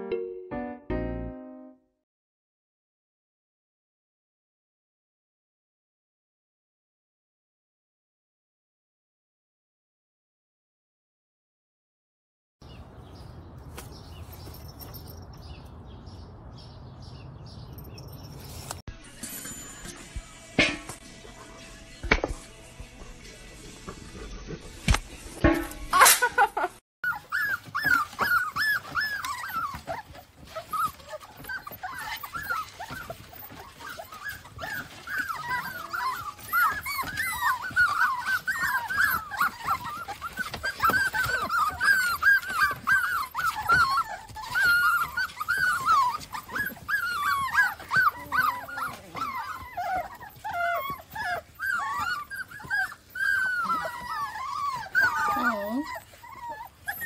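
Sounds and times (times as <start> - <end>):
puppies whining and squeaking: 14.1 - 15.8, 17.0 - 18.8, 27.0 - 57.0.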